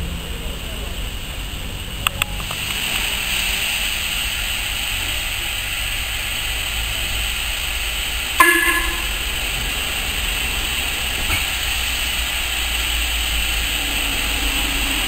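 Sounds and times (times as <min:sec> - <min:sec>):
steam locomotive hissing: 0:00.0 - 0:15.0
steam whistle toot: 0:08.4 - 0:09.5.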